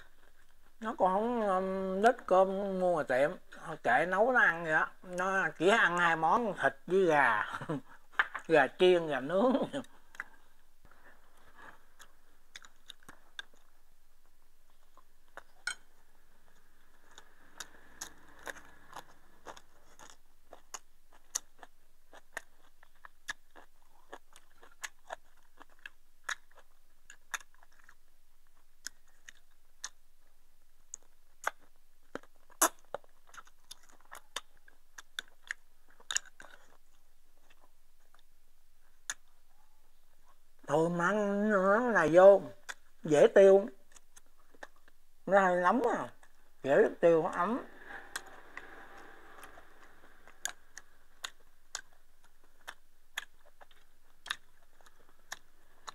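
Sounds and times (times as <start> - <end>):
person chewing and crunching: 9.8 - 38.3, 47.3 - 55.9.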